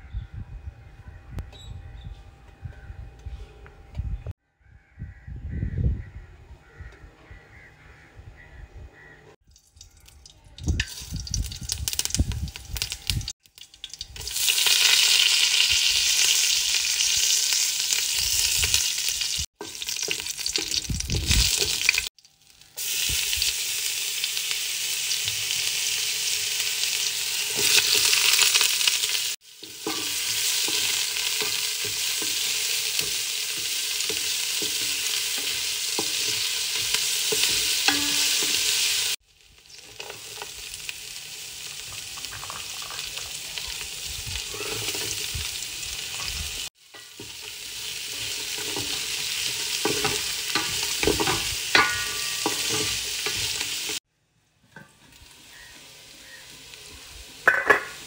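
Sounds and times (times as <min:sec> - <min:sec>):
vegetables sizzling in oil: 0:09.6 - 0:54.0, 0:54.8 - 0:58.0.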